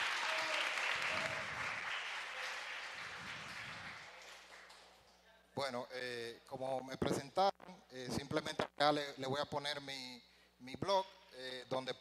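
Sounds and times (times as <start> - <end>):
audience applauding: 0.0 - 4.9.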